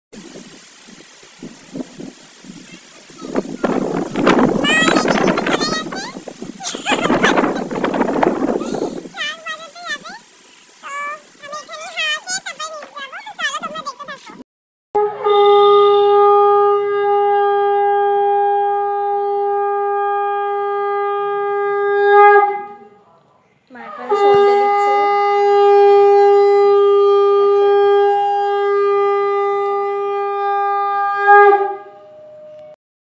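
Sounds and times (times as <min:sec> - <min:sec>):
conch shell blasts: 0:15.0 - 0:22.9, 0:24.1 - 0:32.2.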